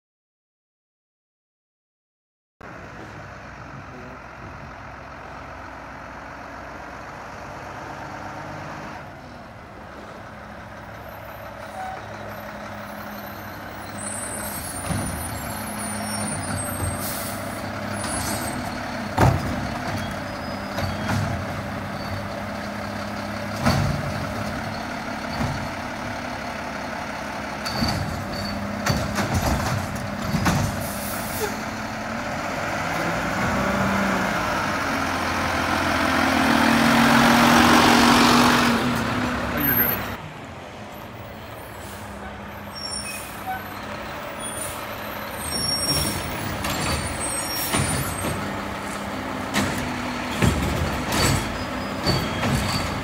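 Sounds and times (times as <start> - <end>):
garbage truck engine running: 2.7 - 53.0
arm dumping a cart: 11.4 - 40.2, 41.5 - 53.0.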